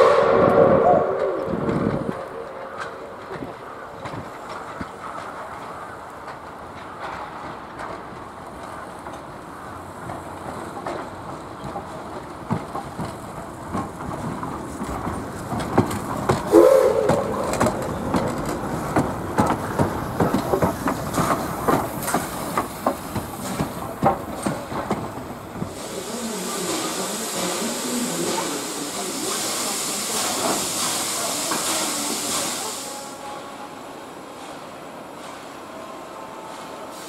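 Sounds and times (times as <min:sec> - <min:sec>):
locomotive toot: 0:00.0 - 0:03.4, 0:16.5 - 0:18.0
train wheels clattering on rails: 0:00.0 - 0:37.0
steam hissing: 0:15.8 - 0:37.0.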